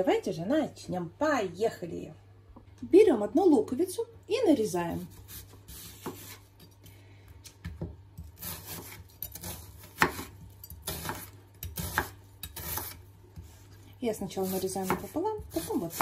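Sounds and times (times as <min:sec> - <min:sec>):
knife slicing through onion: 0:04.9 - 0:06.9, 0:08.2 - 0:16.0.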